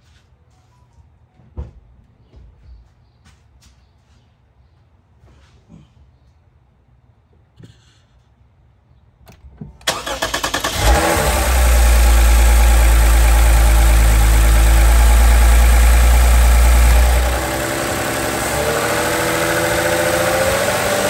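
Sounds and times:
car engine idling: 9.8s - 21.0s
starter cranking: 9.9s - 11.6s.

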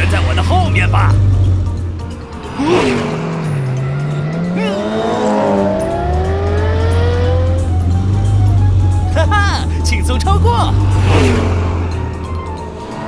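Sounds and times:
cartoon race car engines revving: 0.0s - 13.0s
steady low drone: 5.8s - 13.0s.

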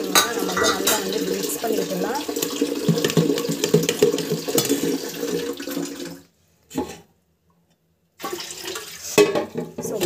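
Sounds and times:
spoon stirring thick batter: 2.3s - 5.2s.

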